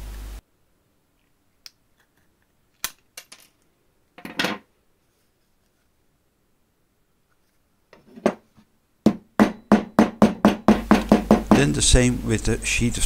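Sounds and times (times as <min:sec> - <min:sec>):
metal clattering on table: 0:04.2 - 0:04.7.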